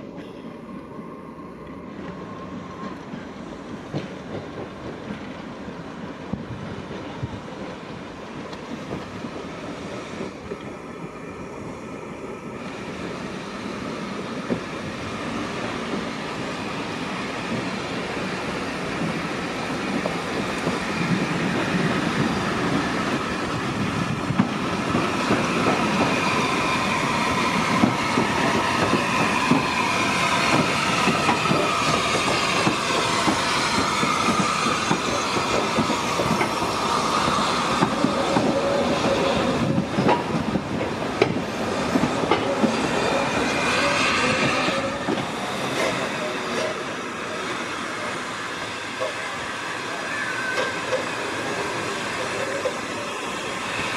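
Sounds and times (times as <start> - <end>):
steam train passing: 0.0 - 53.9
wheels squealing: 47.4 - 53.9.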